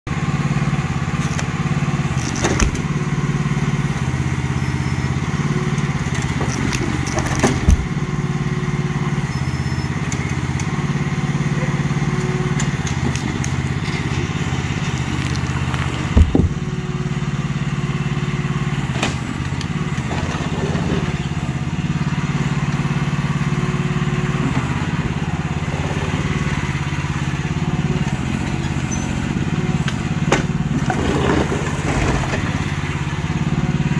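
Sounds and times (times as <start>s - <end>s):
excavator engine running: 0.1s - 33.9s
concrete slabs cracking: 12.2s - 16.8s.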